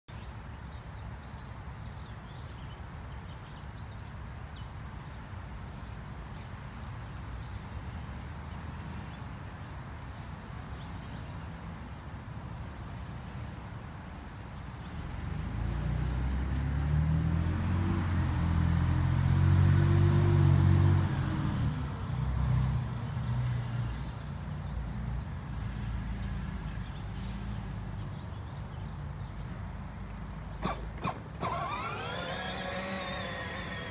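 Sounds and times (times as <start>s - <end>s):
vehicle engine: 15.0s - 23.7s, 30.2s - 33.9s.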